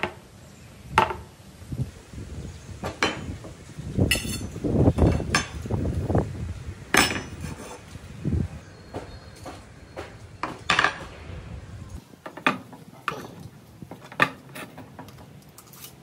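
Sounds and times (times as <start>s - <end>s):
metal pipes clanking on wood: 4.1s - 5.7s, 6.9s - 7.6s, 9.4s - 11.2s.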